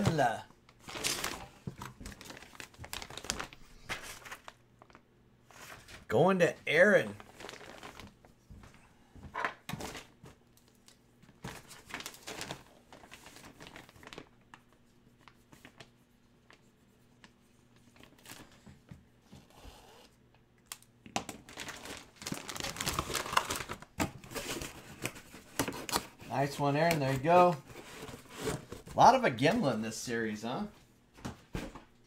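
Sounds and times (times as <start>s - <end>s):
plastic packaging crinkling: 0.8s - 5.0s, 7.1s - 8.2s, 9.7s - 14.7s, 20.7s - 26.1s.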